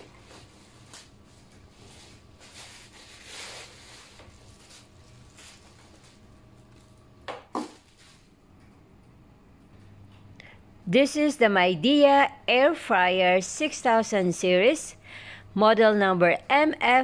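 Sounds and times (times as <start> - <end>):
plastic packaging rustling: 0.0 - 8.4.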